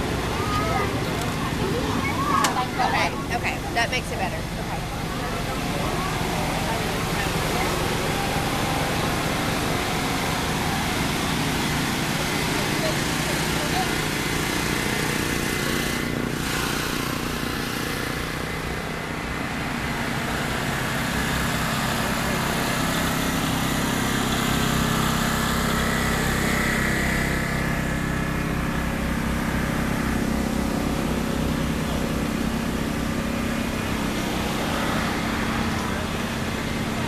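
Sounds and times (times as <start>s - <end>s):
engine running with low hum: 0.0s - 37.0s.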